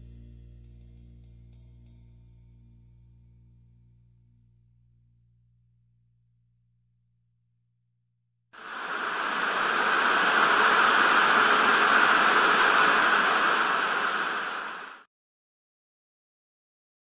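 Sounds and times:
television static hiss: 8.6 - 15.0.

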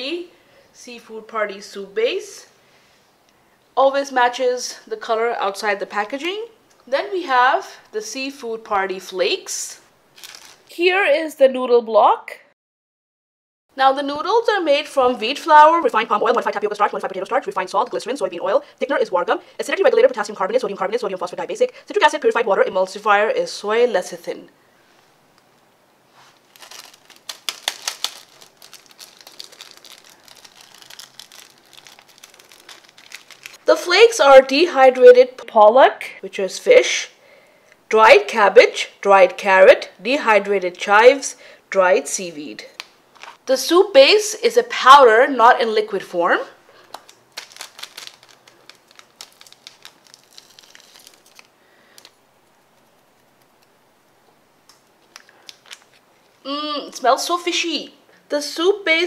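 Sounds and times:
plastic sachet crinkling and tearing: 10.1 - 10.7, 26.4 - 33.7, 46.8 - 53.8, 54.7 - 56.4.

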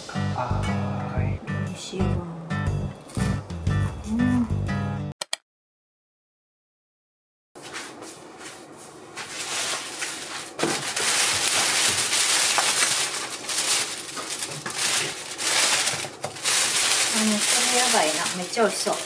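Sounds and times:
plastic bag rustling: 9.1 - 19.0.

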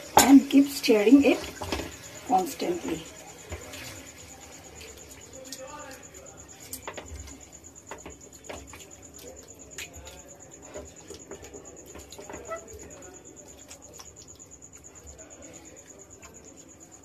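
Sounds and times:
spatula scraping a frying pan: 0.1 - 4.2, 10.6 - 13.0.

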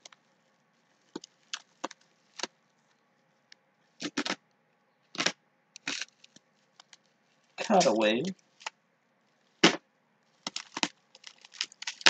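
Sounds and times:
bubble wrap crinkling: 0.0 - 3.0, 5.2 - 12.0
blade cutting bubble wrap: 10.4 - 12.0.

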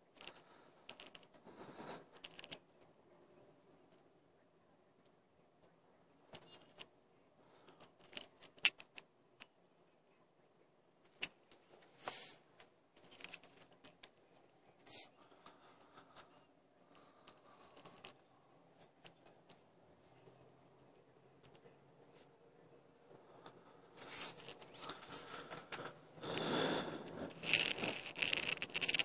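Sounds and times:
short rustling hisses: 12.0 - 12.4.

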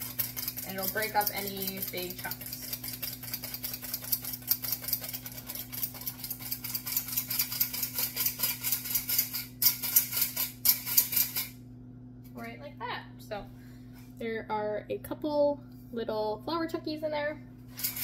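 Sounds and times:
flour sifter rasping: 0.0 - 11.3.

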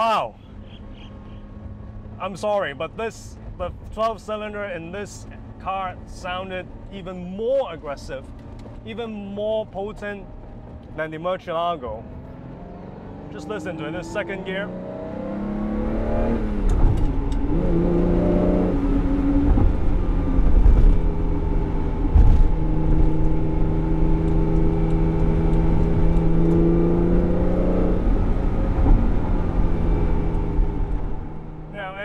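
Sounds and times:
car engine pulling hard: 11.9 - 32.0.

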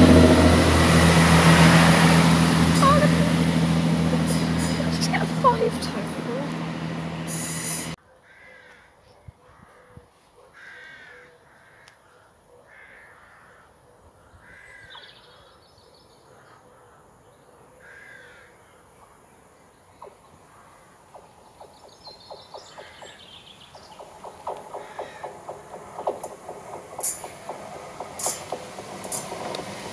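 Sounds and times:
train wheels rattling: 0.0 - 8.0, 23.8 - 29.9
crows cawing: 8.2 - 9.9, 10.6 - 15.0, 17.8 - 18.8, 22.7 - 23.2, 24.3 - 26.2.

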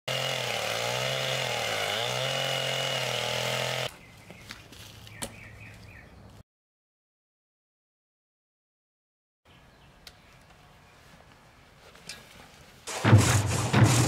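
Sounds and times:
chainsaw cutting log: 0.1 - 3.9, 12.9 - 14.0.

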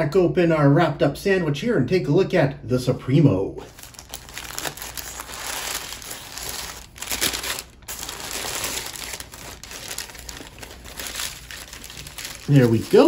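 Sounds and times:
paper wrapper crinkling: 3.7 - 13.0.

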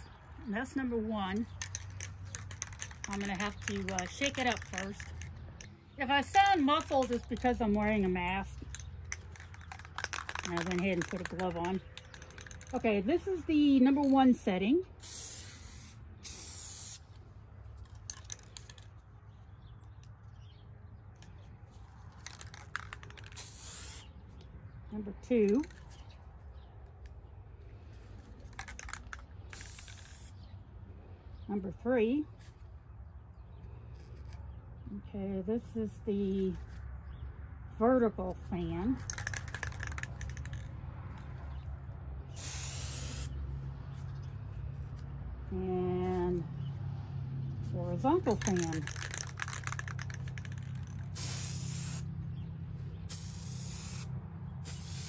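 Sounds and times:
spray paint can hissing: 1.5 - 5.6, 6.2 - 8.0, 8.6 - 12.7, 15.0 - 17.1, 22.2 - 24.1, 28.5 - 30.4, 39.0 - 40.7, 42.3 - 43.4, 48.2 - 52.1, 53.1 - 55.0
aerosol spray can hissing: 15.0 - 17.0, 22.8 - 24.1, 28.6 - 30.4, 42.4 - 43.4, 48.4 - 52.1, 53.1 - 55.0.

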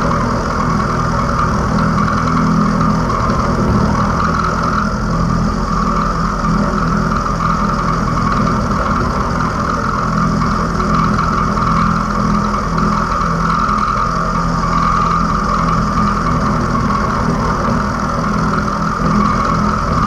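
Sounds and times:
milling machine drone: 0.0 - 20.0.

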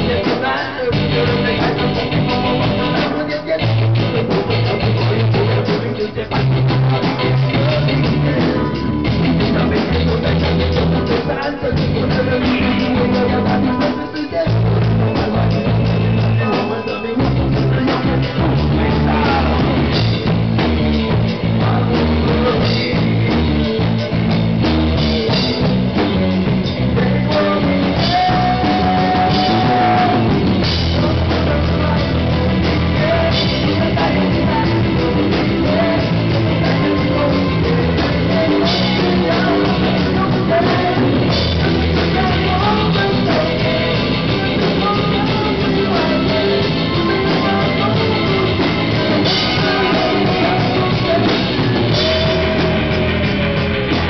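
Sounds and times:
man singing: 0.0 - 54.0
rock band playing live: 0.0 - 54.0.

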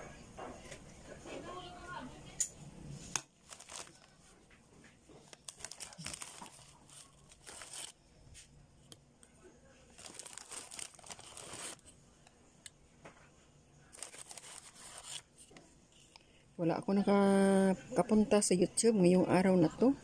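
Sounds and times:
plastic wrapper crinkling: 3.4 - 4.3, 5.2 - 8.0, 9.9 - 11.8, 13.9 - 15.2.

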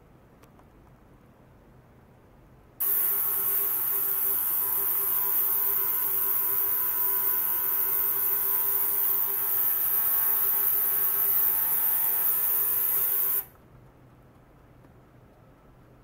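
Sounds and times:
ultrasonic cleaner hissing and humming: 2.8 - 13.5.

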